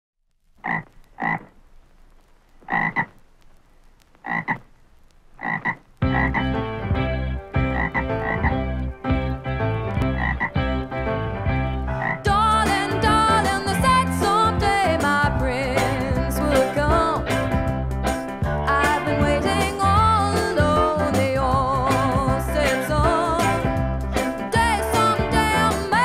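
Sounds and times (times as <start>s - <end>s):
frog-like croaks: 0.6s - 1.6s, 2.6s - 3.2s, 4.2s - 4.7s, 5.4s - 9.4s, 10.0s - 10.8s, 11.9s - 12.3s
band playing with steady beat: 6.0s - 9.4s, 12.3s - 26.0s.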